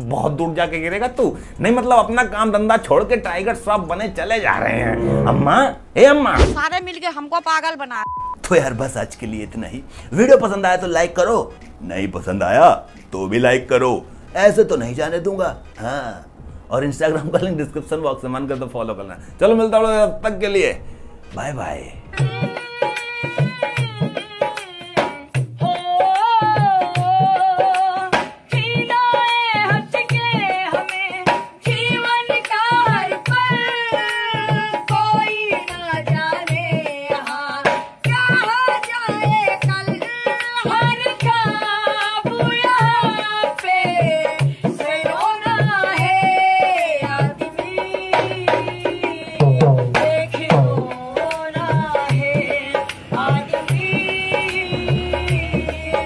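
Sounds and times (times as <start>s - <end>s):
hand drum rhythm: 22.2s - 56.0s.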